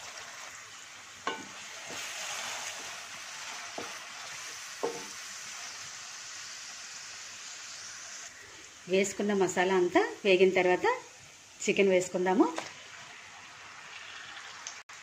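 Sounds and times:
food sizzling in hot oil: 0:00.0 - 0:15.0
spatula knocking against pan: 0:01.3 - 0:01.5, 0:04.8 - 0:05.1
wooden spatula stirring: 0:01.3 - 0:05.2.

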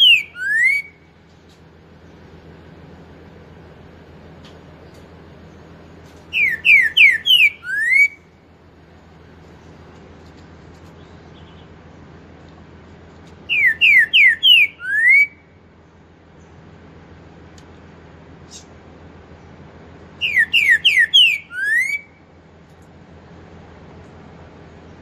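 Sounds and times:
bird singing whistled song: 0:00.0 - 0:01.2, 0:06.3 - 0:08.3, 0:13.4 - 0:15.5, 0:20.2 - 0:22.2.

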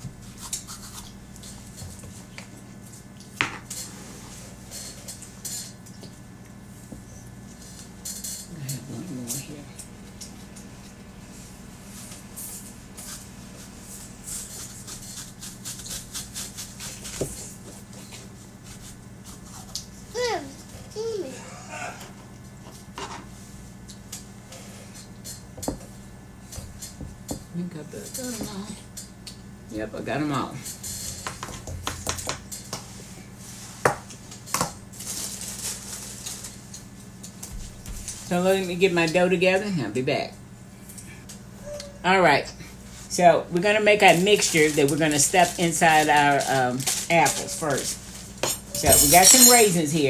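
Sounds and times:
plastic bag crinkling: 0:44.0 - 0:48.2.

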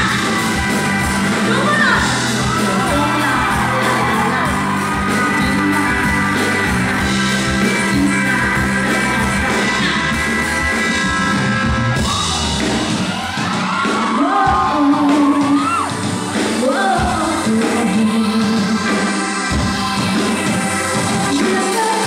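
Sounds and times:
bass guitar: 0:00.0 - 0:22.0
keyboard: 0:00.0 - 0:22.0
woman singing: 0:01.5 - 0:07.0, 0:07.6 - 0:10.1, 0:14.0 - 0:22.0.

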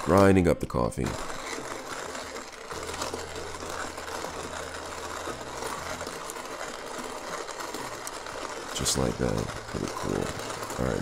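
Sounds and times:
hand coffee grinder grinding: 0:00.0 - 0:11.0.

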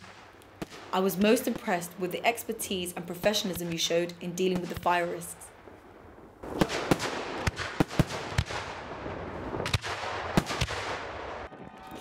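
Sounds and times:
fireworks bangs: 0:00.0 - 0:01.9, 0:06.4 - 0:11.9
fireworks crackling: 0:00.0 - 0:02.4, 0:03.5 - 0:11.6.

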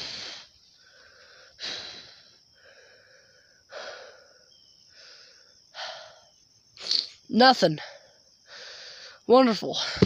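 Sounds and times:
person breathing heavily: 0:00.0 - 0:06.4, 0:08.4 - 0:09.2.

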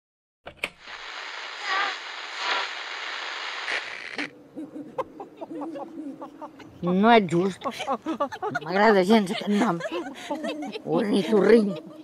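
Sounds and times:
television static hiss: 0:00.6 - 0:04.3.

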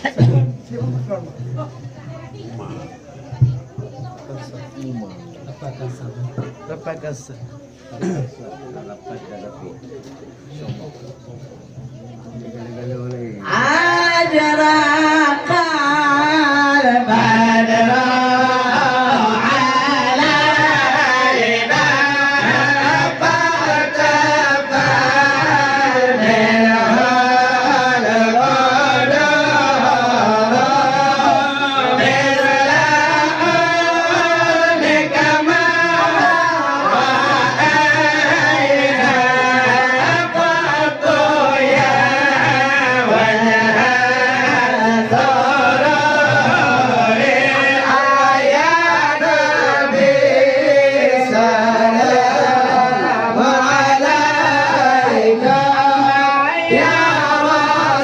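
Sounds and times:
men singing through sound system: 0:13.4 - 0:58.0.

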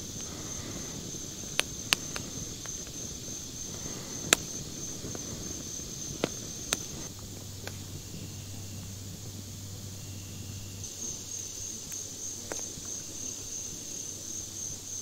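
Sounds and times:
campfire crackling and popping: 0:00.0 - 0:15.0
insects trilling: 0:00.0 - 0:15.0.

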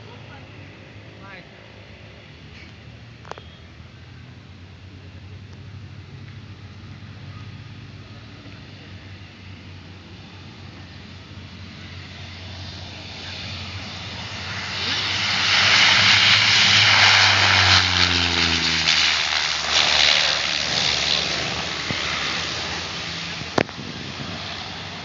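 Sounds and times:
propeller airplane landing: 0:00.0 - 0:25.0.

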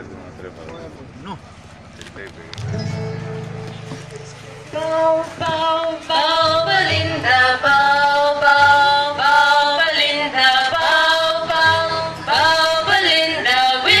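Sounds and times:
low accompaniment: 0:02.5 - 0:08.0.

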